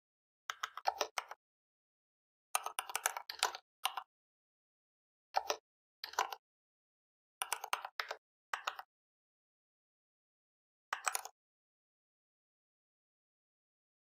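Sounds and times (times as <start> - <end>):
keyboard typing clicks: 0.5 - 1.4, 2.6 - 4.1, 5.4 - 6.4, 7.4 - 8.9, 11.0 - 11.4.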